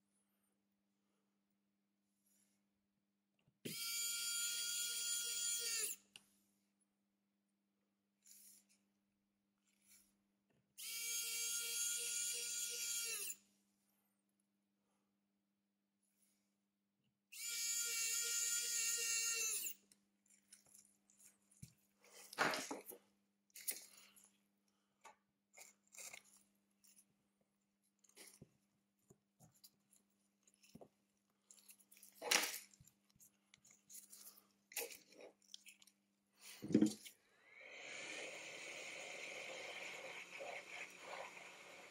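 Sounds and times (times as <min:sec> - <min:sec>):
small electric motor whining: 0:03.7 - 0:06.0, 0:10.8 - 0:13.4, 0:17.3 - 0:19.8.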